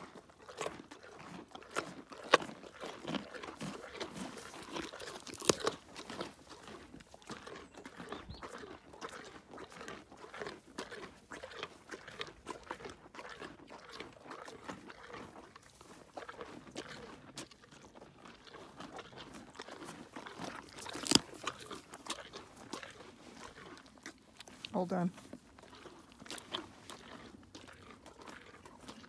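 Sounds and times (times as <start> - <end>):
pony chewing carrots: 0.0 - 29.0.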